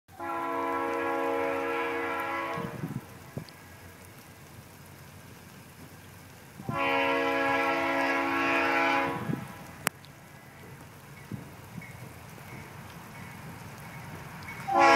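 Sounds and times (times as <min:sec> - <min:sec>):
distant locomotive horn: 0:00.1 - 0:03.1, 0:06.6 - 0:09.7, 0:14.6 - 0:14.9.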